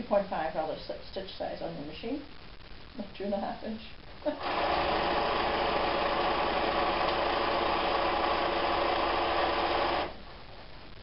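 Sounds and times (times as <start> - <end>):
sewing machine running: 4.4 - 10.2.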